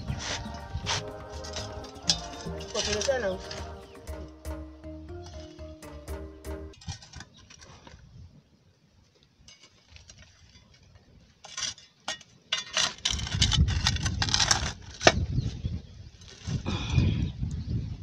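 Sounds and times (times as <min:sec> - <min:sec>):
metal shovel scraping charcoal: 0:00.0 - 0:04.3, 0:06.7 - 0:08.0, 0:09.4 - 0:15.2.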